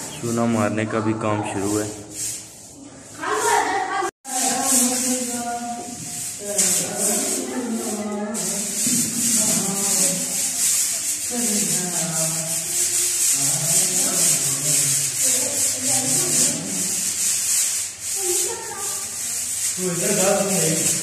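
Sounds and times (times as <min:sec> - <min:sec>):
brooms swishing on walls: 0:01.5 - 0:21.0.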